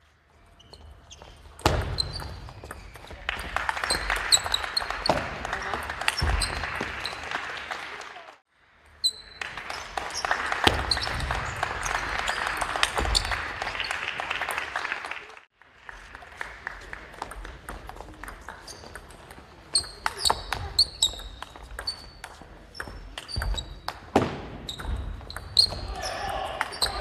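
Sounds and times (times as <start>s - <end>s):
shoe squeaks on wooden floor: 0.5s - 3.2s, 19.7s - 23.9s, 24.6s - 25.9s.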